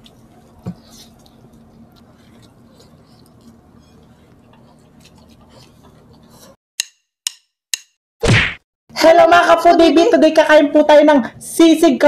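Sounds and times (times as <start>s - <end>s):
people chewing food: 0.0s - 6.6s
fingers working through food: 0.0s - 7.8s.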